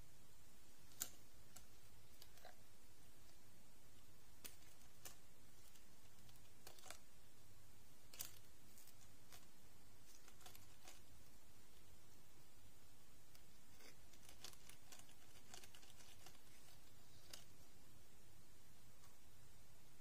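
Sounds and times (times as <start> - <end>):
plastic doll clicks and rustles: 4.4 - 7.0, 8.1 - 9.5, 10.1 - 11.1, 14.1 - 17.5.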